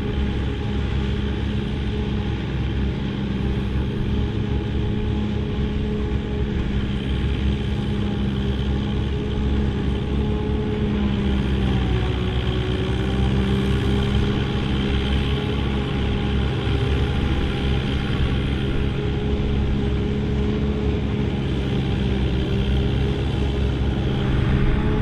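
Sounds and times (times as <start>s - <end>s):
forage harvester cutter and blower: 0.0s - 25.0s
second tractor running: 0.0s - 25.0s
tractor engine pulling under load: 0.0s - 25.0s.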